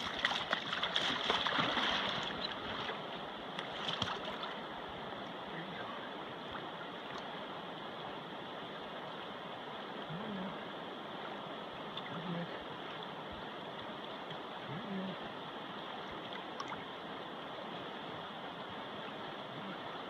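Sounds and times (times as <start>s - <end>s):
faint low hums: 0.0s - 10.8s
river water rushing: 0.0s - 20.0s.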